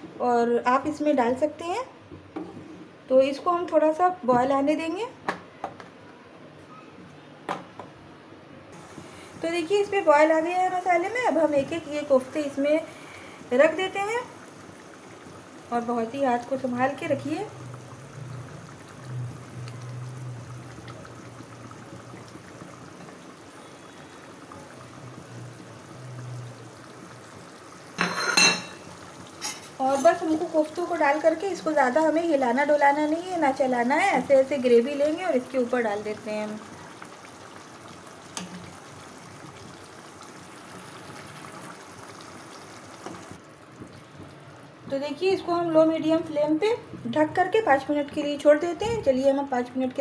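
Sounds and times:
gravy bubbling in a pan: 0:08.8 - 0:48.4.

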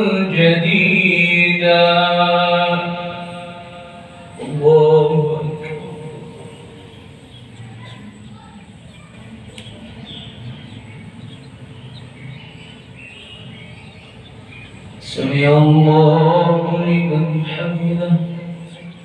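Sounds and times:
man chanting through microphone: 0:00.0 - 0:07.1, 0:15.0 - 0:19.0
faint low voices: 0:05.5 - 0:19.0.

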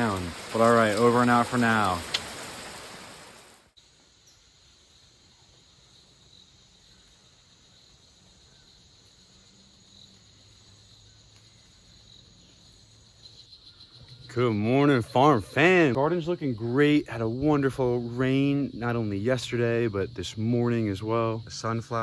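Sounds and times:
rain: 0:00.0 - 0:04.1
insects chirring: 0:00.0 - 0:22.0.

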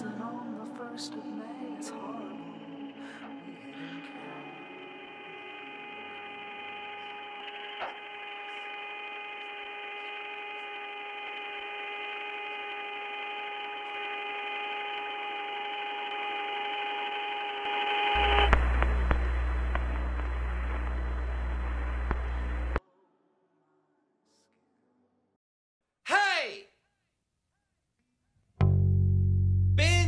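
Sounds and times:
radio static hum and hiss: 0:17.6 - 0:22.8.

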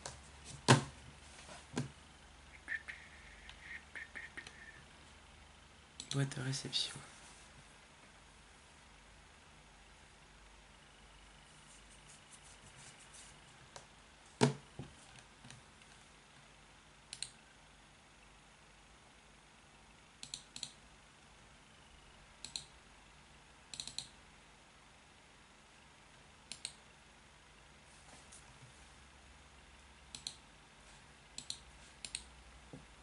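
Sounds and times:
computer mouse clicking: 0:17.1 - 0:17.4, 0:20.2 - 0:20.8, 0:22.4 - 0:22.7, 0:23.7 - 0:24.1, 0:26.5 - 0:26.8, 0:30.1 - 0:30.4, 0:31.4 - 0:32.3.

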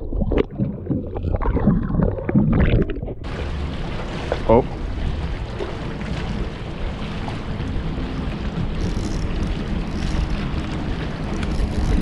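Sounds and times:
water lapping against a boat: 0:00.0 - 0:12.0.

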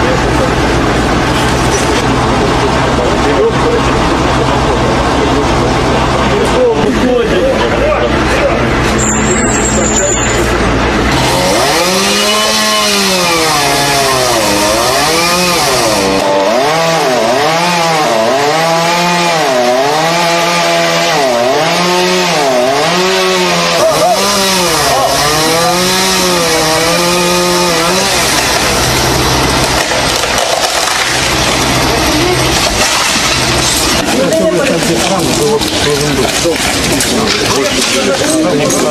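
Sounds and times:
chainsaw cutting wood: 0:11.0 - 0:38.9.

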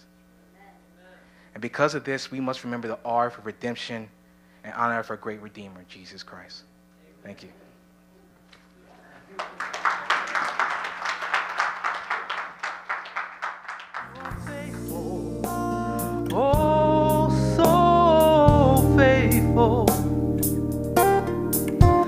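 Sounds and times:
people clapping: 0:09.2 - 0:14.9
woman singing gospel song: 0:14.1 - 0:20.0
music with deep bass: 0:14.1 - 0:22.0.

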